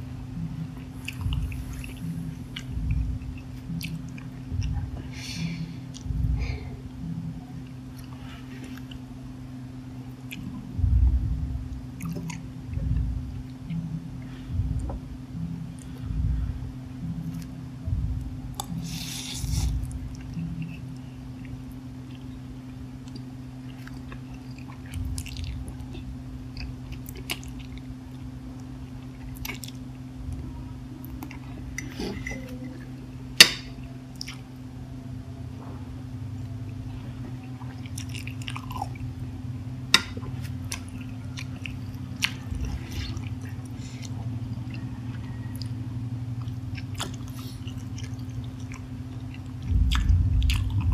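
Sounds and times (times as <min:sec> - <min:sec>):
steady low hum: 0:00.0 - 0:50.9
wet chewing and slurping noodles: 0:36.6 - 0:39.2, 0:40.1 - 0:50.9.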